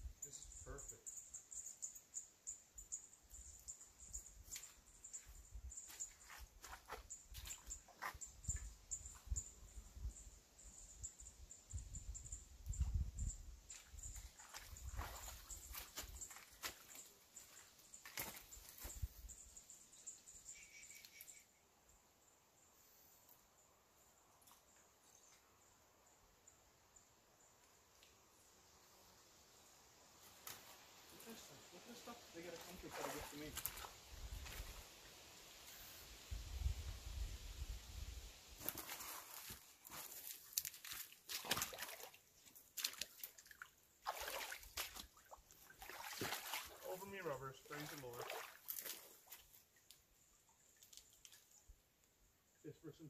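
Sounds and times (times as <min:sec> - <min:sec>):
water sloshing: 0:14.2 - 0:18.6, 0:32.4 - 0:34.7, 0:38.6 - 0:49.6
quiet hiss: 0:17.9 - 0:41.6.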